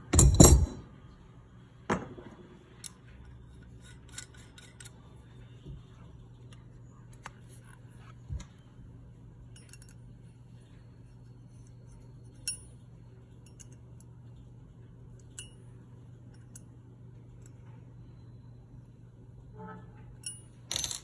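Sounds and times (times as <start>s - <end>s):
metal parts clicking and clinking: 0.0s - 0.8s, 3.8s - 5.1s, 9.5s - 10.0s, 20.2s - 21.0s
steady low hum: 0.0s - 21.0s.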